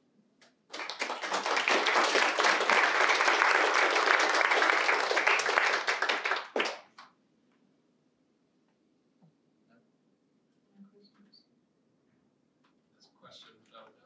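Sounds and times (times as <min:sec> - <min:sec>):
audience applauding: 0:00.7 - 0:07.0.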